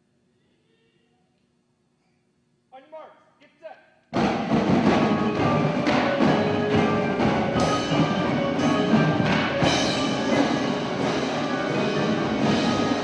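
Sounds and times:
marching drums: 4.1 - 13.0
marimbas ringing: 4.4 - 13.0.

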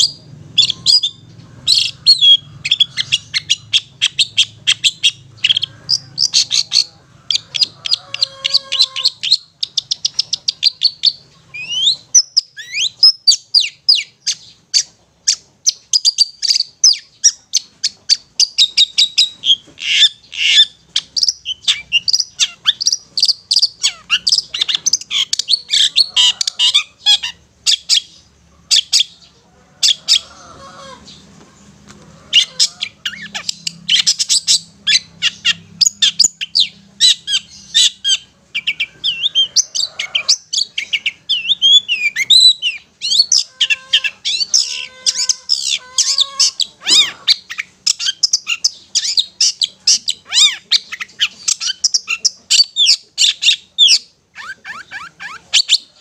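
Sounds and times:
bird chattering song: 0.0 - 56.0.

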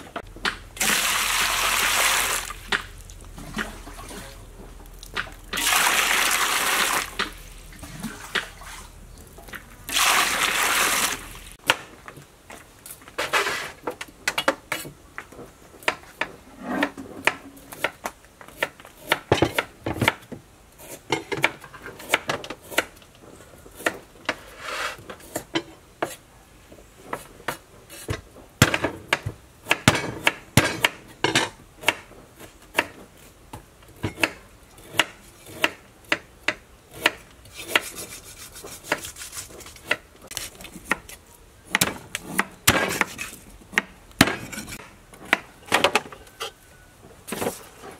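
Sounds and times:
water rushing into metal basin: 0.8 - 4.4, 5.5 - 9.0, 9.8 - 11.6.

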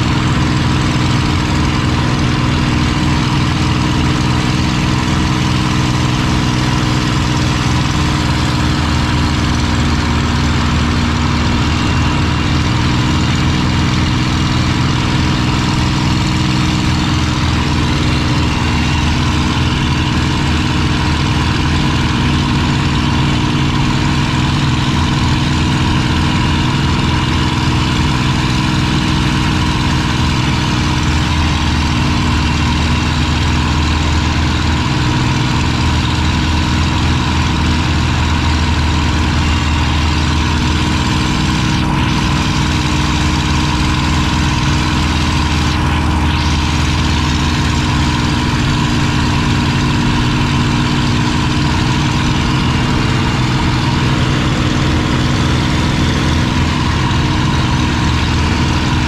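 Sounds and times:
aircraft engine running: 0.0 - 59.0
rush of air in cockpit: 0.0 - 59.0.

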